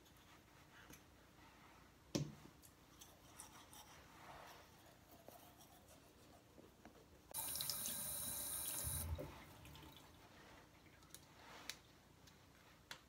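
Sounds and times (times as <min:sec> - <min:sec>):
tap water running onto hands: 0:07.4 - 0:10.1.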